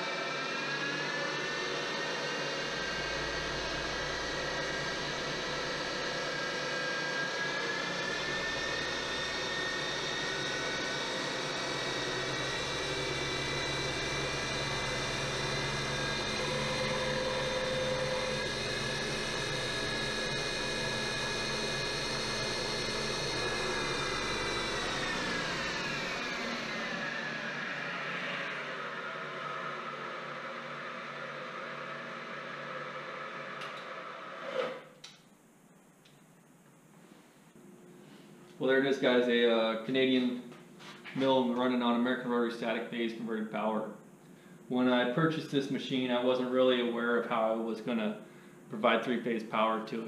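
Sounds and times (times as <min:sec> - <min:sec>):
milling machine motor whine: 0:00.0 - 0:36.4.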